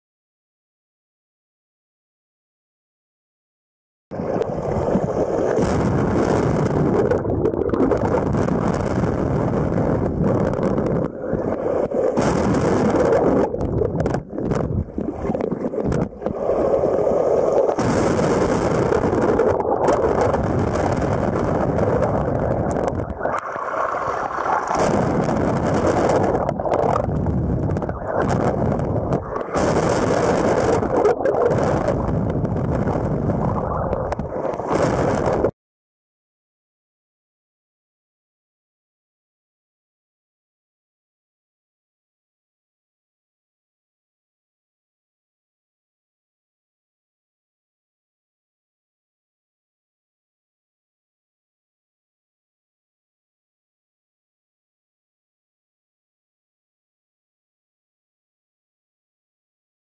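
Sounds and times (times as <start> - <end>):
water washing over microphone: 4.2 - 35.5.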